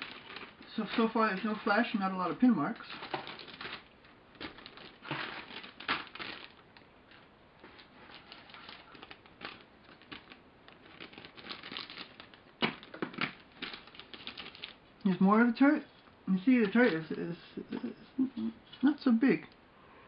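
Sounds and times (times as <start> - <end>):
plastic packaging crinkling: 0.0 - 15.2
plastic sprues clicking: 2.8 - 14.8.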